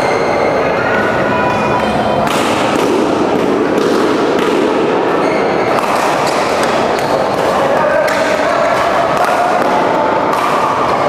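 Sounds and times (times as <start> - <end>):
racket striking shuttlecock: 2.2 - 11.0.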